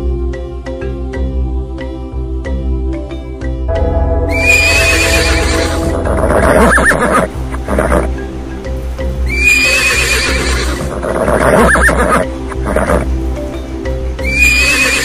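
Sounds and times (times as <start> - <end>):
backing music track: 0.0 - 15.0
horse whinnying: 4.5 - 8.1, 9.3 - 13.1, 14.2 - 15.0.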